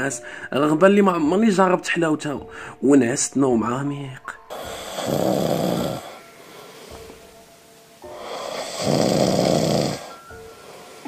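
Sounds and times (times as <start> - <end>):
faint background music: 0.0 - 11.0
person snoring: 4.5 - 7.2, 8.1 - 11.0.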